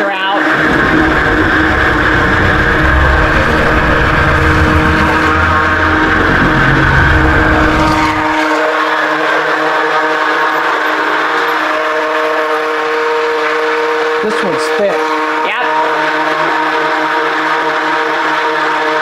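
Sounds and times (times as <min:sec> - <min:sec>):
immersion blender motor whine: 0:00.0 - 0:19.0
low rumble: 0:00.4 - 0:08.4.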